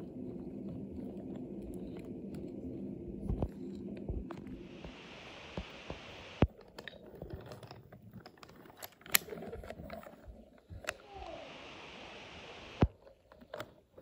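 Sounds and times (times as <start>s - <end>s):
soft hiss: 0.0s - 6.6s, 10.6s - 13.0s
wooden toy train clicking on track: 6.4s - 11.3s.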